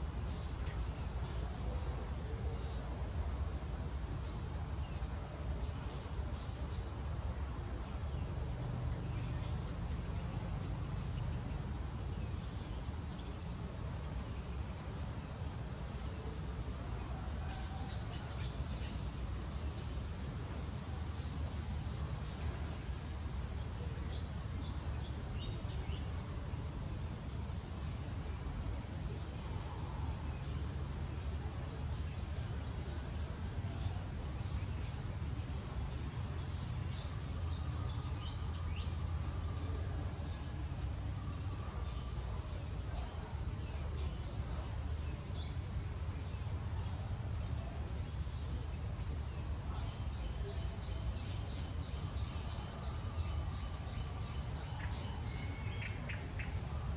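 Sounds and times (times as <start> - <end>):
high-pitched insect trill: 33.6 - 56.9.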